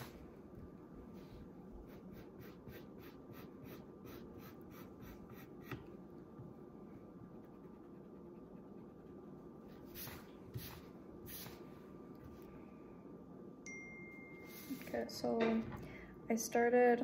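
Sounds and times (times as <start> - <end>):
pencil scratching on paper: 1.2 - 5.9, 7.2 - 11.6.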